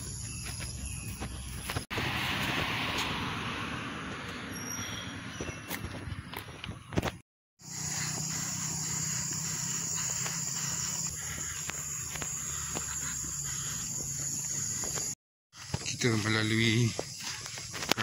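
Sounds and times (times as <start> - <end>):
faint footsteps: 0.0 - 3.2, 7.9 - 18.0
high-pitched insect drone: 7.6 - 17.8.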